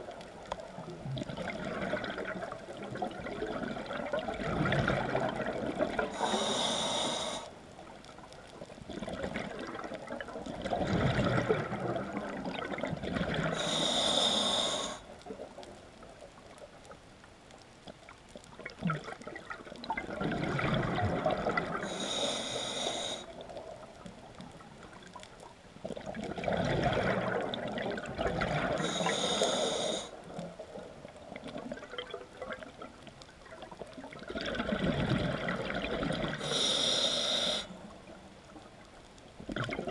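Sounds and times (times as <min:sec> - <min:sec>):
diver breathing through regulator: 0:06.1 - 0:07.6, 0:13.5 - 0:15.1, 0:21.8 - 0:23.3, 0:28.7 - 0:30.2, 0:36.4 - 0:37.8.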